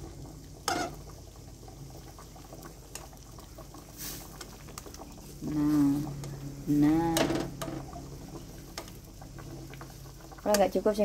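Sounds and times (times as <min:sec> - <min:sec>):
noodles bubbling in water: 0:00.0 - 0:11.0.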